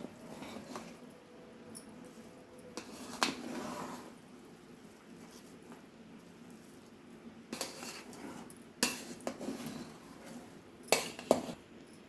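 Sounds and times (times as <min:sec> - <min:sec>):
spoon scraping rice in pot: 0:00.0 - 0:01.1, 0:02.1 - 0:04.2, 0:07.5 - 0:11.7
metal spoon clinking on pot: 0:10.8 - 0:12.0.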